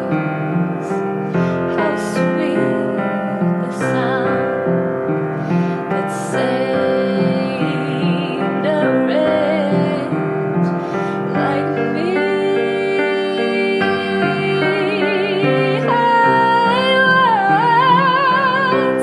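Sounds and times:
woman singing with vibrato: 0.0 - 4.9, 5.5 - 19.0
piano accompaniment: 0.0 - 19.0.

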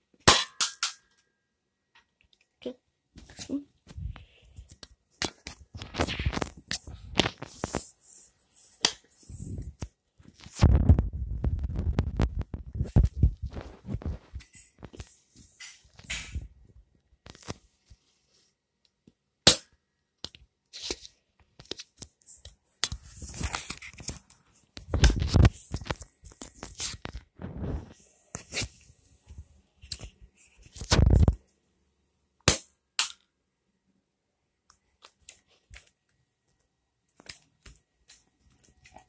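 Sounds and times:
handling rubbing on microphone: 3.9 - 4.6, 5.7 - 15.6, 22.9 - 31.3.

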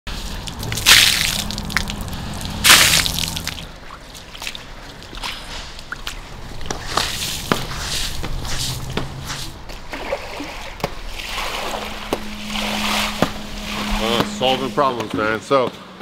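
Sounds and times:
water dripping: 0.1 - 7.6, 9.7 - 14.7
shoes splashing through water: 0.1 - 14.8
low steady hum: 0.1 - 16.0.

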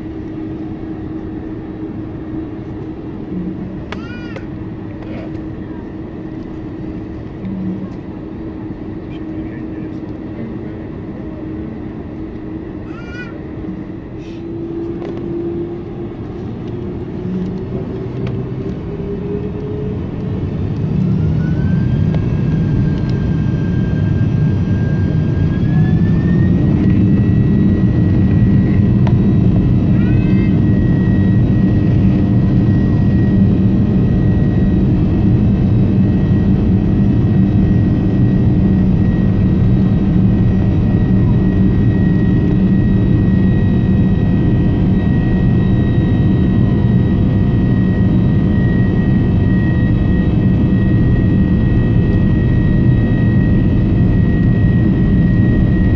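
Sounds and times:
jet engines spooling up: 13.4 - 55.9.

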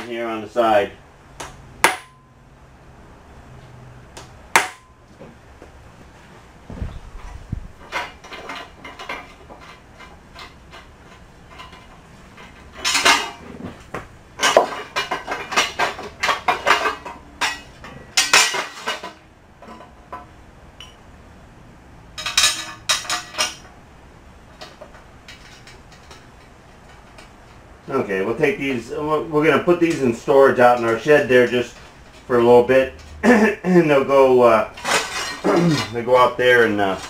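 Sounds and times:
metal tools clinking and clattering: 7.2 - 13.5, 14.4 - 21.0, 22.2 - 23.7, 34.7 - 37.0.

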